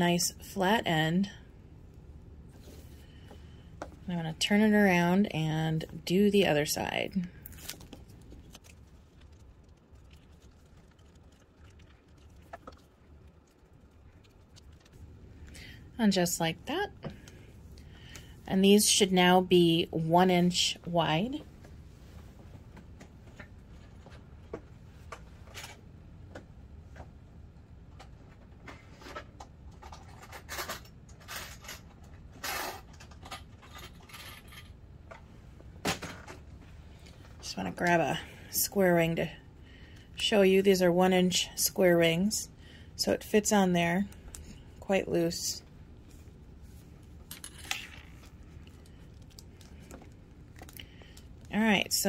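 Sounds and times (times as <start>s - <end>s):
low steady hum: 0.0s - 52.0s.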